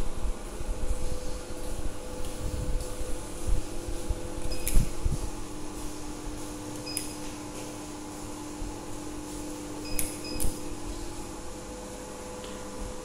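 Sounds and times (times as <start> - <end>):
machine hum: 0.0 - 13.0
keypad beeps: 4.5 - 4.8, 6.8 - 7.2, 9.8 - 10.5.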